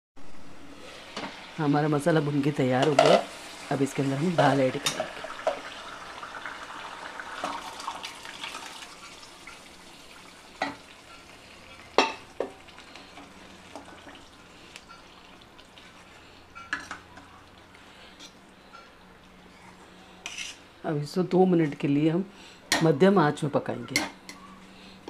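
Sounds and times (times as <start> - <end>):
food sizzling in a pan: 0.2 - 18.4.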